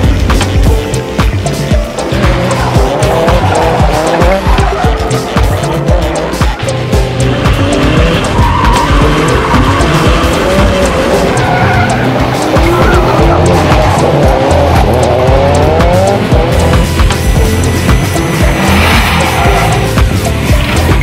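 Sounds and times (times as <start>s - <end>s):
music with heavy beat: 0.0s - 21.0s
tyres squealing: 1.9s - 16.3s
car engine revving hard: 1.9s - 21.0s.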